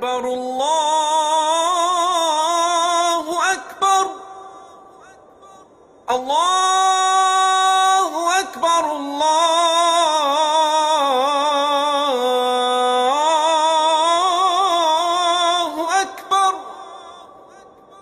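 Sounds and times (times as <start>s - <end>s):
solo voice chanting: 0.0s - 18.0s.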